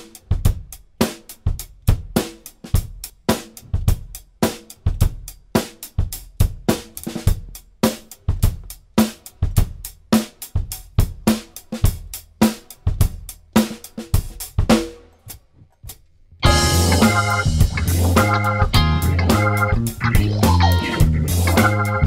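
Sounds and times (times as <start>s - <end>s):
drum kit beat: 0.0s - 22.0s
electric bass: 16.4s - 22.0s
electric guitar: 16.4s - 22.0s.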